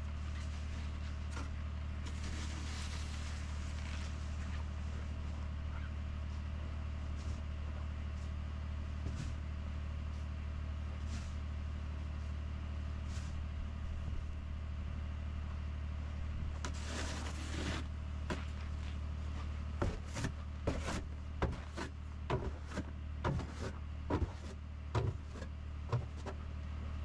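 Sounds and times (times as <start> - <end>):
snow shovel scraping: 2.0 - 4.4, 16.6 - 18.5, 19.8 - 25.5.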